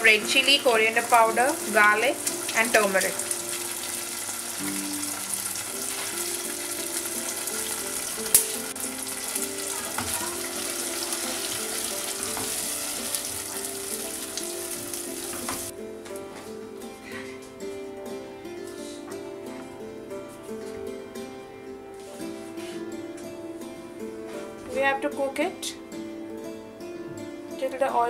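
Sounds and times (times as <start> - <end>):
spice paste sizzling in oil: 0.0 - 15.7.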